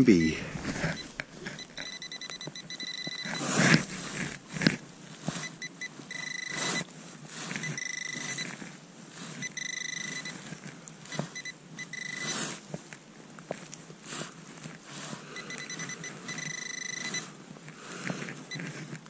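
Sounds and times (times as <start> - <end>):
high pulsing beep: 0.0 - 4.3, 5.6 - 6.8, 7.7 - 8.4, 9.5 - 10.3, 11.4 - 12.3, 15.4 - 17.2
probe scraping in dirt: 0.2 - 12.9, 13.5 - 19.0.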